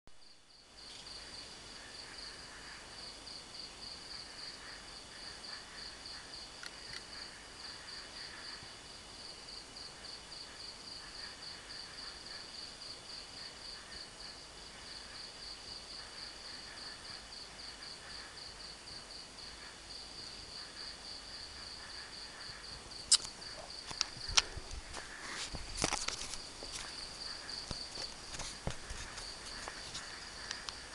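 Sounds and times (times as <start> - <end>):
crickets chirping: 0.1 - 30.9
faint insect call: 0.1 - 30.9
sharp clicks: 23.1 - 24.5.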